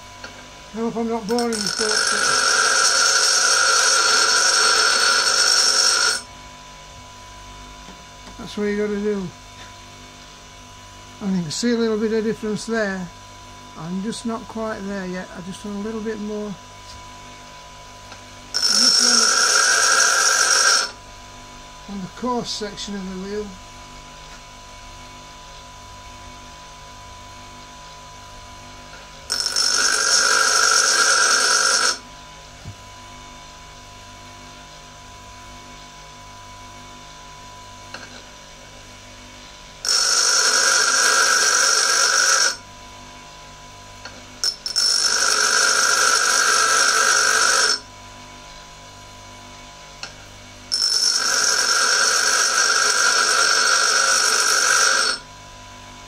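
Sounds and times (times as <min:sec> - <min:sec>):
bench grinder motor humming: 0:00.0 - 0:06.7, 0:11.2 - 0:24.4, 0:28.3 - 0:33.8, 0:34.4 - 0:56.0
high-pitched grinding of tool: 0:00.3 - 0:06.4, 0:13.8 - 0:21.0, 0:21.8 - 0:23.6, 0:28.8 - 0:32.1, 0:39.8 - 0:42.7, 0:44.0 - 0:48.0, 0:50.0 - 0:55.3.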